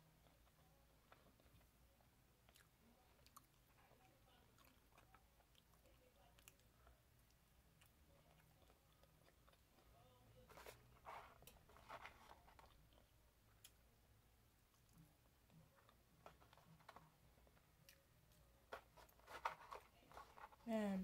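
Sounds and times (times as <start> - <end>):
faint chewing: 0.0 - 13.9, 14.5 - 20.7
paper box rustling: 10.5 - 12.6, 18.7 - 20.7.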